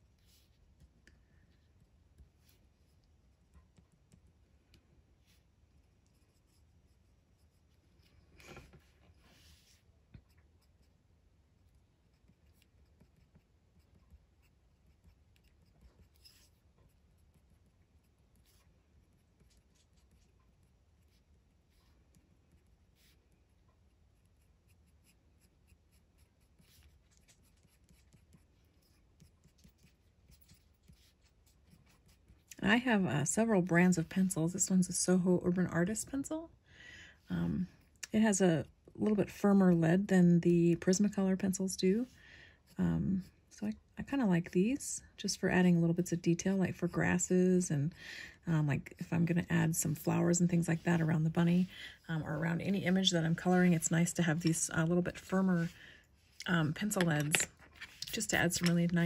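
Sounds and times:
pencil scratching on paper: 0:05.3 - 0:32.5.

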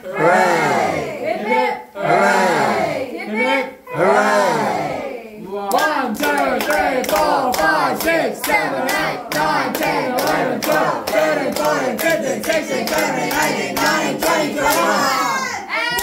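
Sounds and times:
voices singing: 0:00.0 - 0:16.0
group clapping in rhythm: 0:05.6 - 0:16.0.

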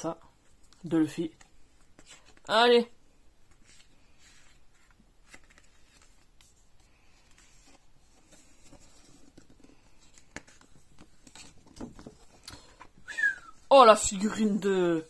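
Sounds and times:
pages turning and rustling: 0:00.4 - 0:02.5, 0:03.4 - 0:13.0.

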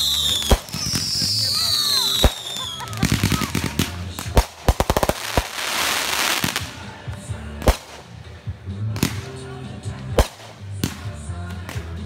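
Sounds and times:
fireworks sharp bangs: 0:00.0 - 0:07.0, 0:07.6 - 0:08.2, 0:08.9 - 0:09.4, 0:10.1 - 0:12.0
fireworks crackling hiss: 0:00.0 - 0:09.4.

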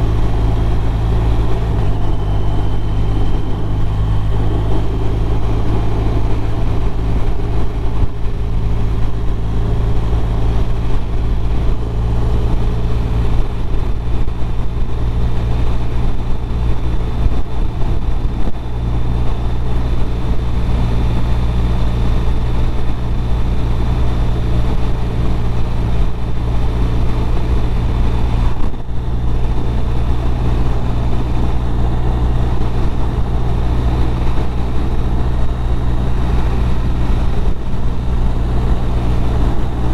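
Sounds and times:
motorcycle engine droning: 0:00.0 - 0:39.9
wind and road noise: 0:00.0 - 0:39.9.

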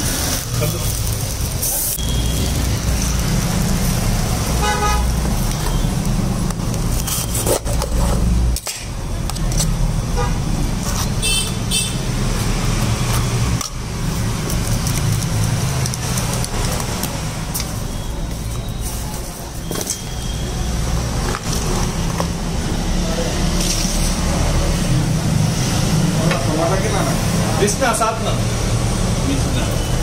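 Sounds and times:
traffic engine rumble: 0:00.0 - 0:30.0
car horn toots: 0:04.6 - 0:05.1, 0:11.2 - 0:12.0.

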